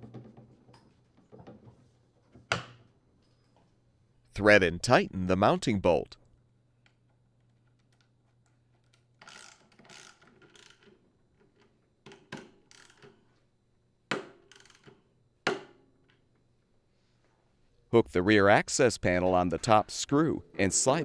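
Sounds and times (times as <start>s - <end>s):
socket ratchet clicking: 14.5s - 14.9s.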